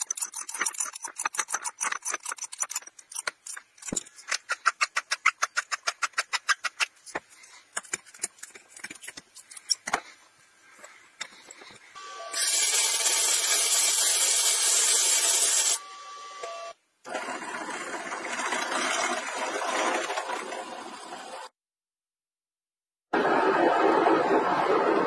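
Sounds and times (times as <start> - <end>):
drill press boring into steel: 12.0 - 15.8.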